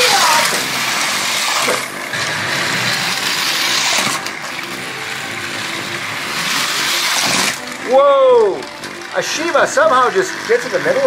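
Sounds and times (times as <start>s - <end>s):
plastic wheels rattling on rails: 0.0s - 11.0s
small electric motors whirring: 0.0s - 11.0s.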